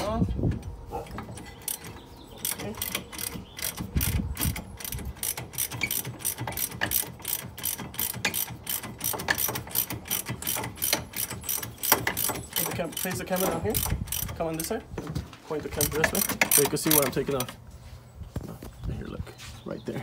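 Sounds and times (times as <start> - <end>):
ratchet wrench clicking: 1.4 - 14.7, 15.8 - 17.5.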